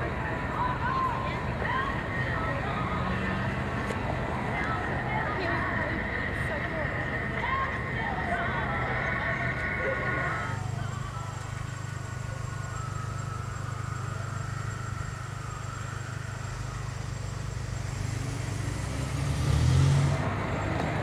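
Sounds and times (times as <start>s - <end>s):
car engine humming: 0.0s - 21.0s
vehicle passing: 0.0s - 21.0s.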